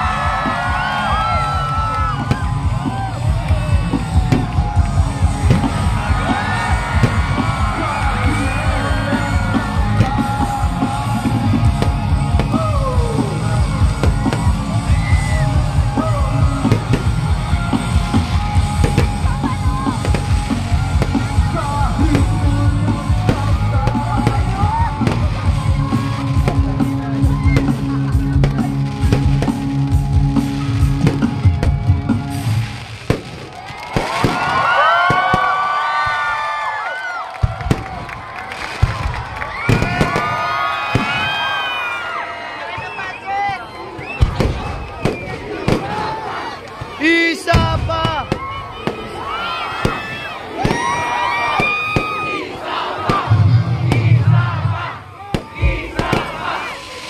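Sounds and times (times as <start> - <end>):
heavy drum beat: 0.0 - 32.7, 53.1 - 56.5
live rock band: 0.0 - 32.7
crowd yelling: 0.0 - 57.0.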